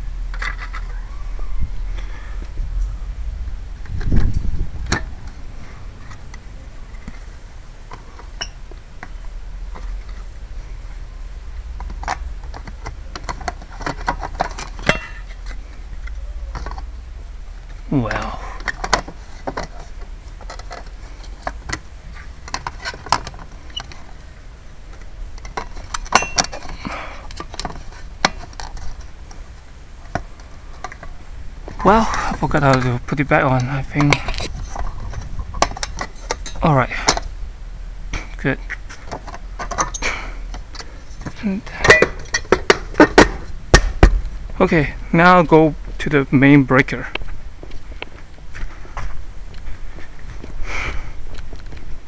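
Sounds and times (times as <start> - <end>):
low rumble: 0.0 - 7.9
low steady rumble: 0.0 - 52.0.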